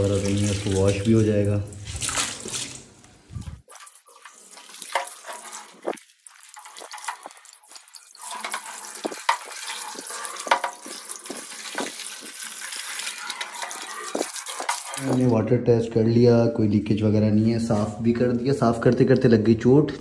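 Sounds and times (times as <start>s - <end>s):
hose water splashing into glass tank: 0.0s - 15.4s.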